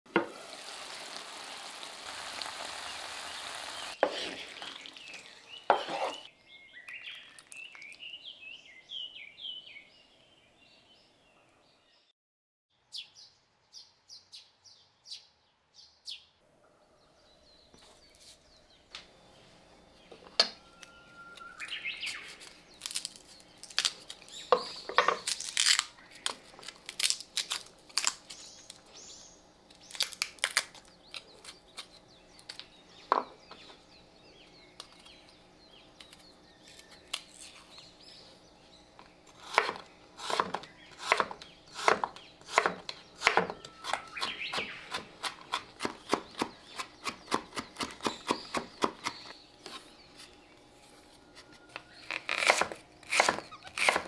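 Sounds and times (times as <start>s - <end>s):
knife chopping on wooden board: 39.4s - 49.2s, 52.4s - 54.0s.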